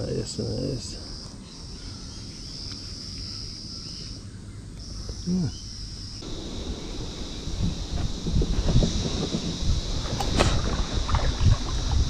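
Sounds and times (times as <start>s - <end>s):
high-pitched insect drone: 5.2s - 12.0s.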